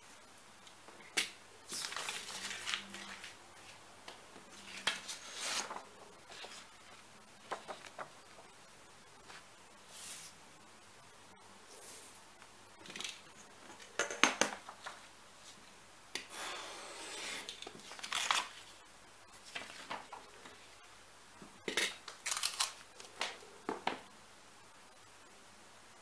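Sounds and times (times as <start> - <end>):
paper rustling and sliding: 1.7 - 3.8, 4.5 - 8.4, 9.2 - 10.4, 19.4 - 20.6.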